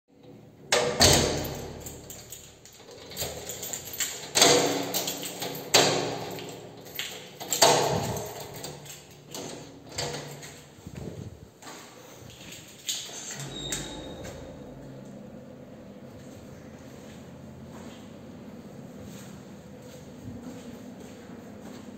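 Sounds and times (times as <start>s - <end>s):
door lock clunks echoing: 0.7s - 10.5s, 13.4s - 15.4s
keys jangling: 1.2s - 11.4s, 12.3s - 14.5s.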